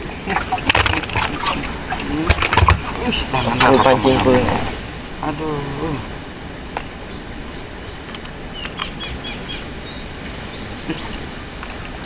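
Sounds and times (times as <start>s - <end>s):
outdoor background noise: 0.0s - 12.0s
bird chirping: 1.3s - 5.4s, 7.0s - 11.4s.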